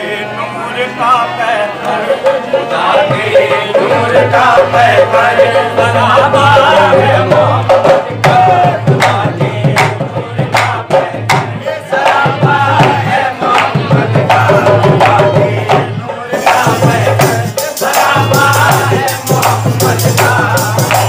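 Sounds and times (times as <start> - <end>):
harmonium: 0.0 - 21.0
people singing: 0.0 - 21.0
rhythmic handclaps: 7.1 - 21.0.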